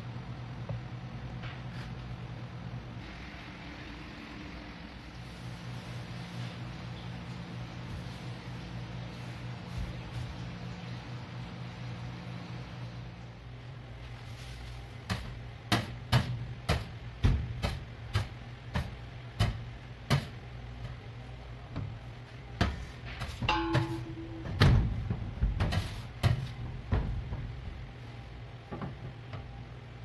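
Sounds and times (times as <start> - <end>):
steady low hum: 0.0 - 30.0
short ringing tone: 23.5 - 24.6.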